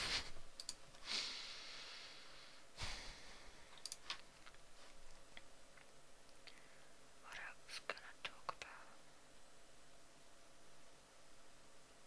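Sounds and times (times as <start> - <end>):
faint clicks: 0.6 - 1.0, 3.7 - 6.6
soft breath: 1.0 - 3.8, 6.5 - 7.0.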